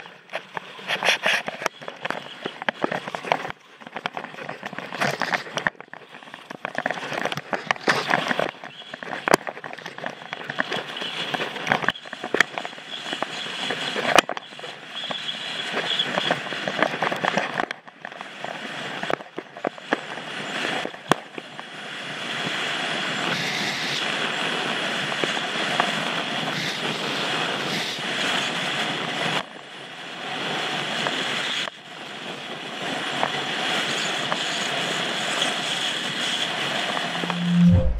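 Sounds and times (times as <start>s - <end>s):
ski clicks and knocks: 0.0s - 14.4s.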